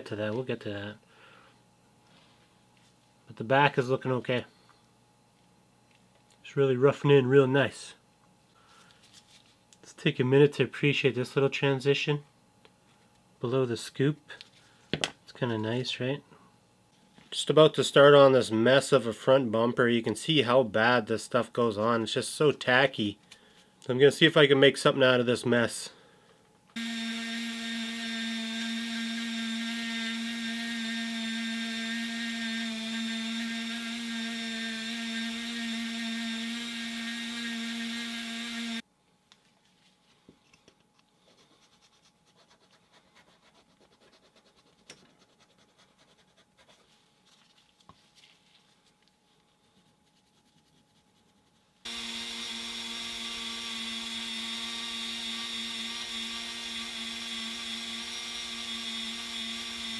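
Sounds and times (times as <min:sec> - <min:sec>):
rotary tool whining: 0:26.8 - 0:38.8, 0:51.9 - 0:59.9.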